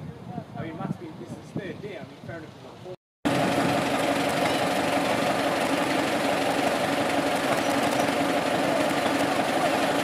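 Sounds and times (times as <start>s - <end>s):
locomotive engine idling: 3.3s - 10.0s.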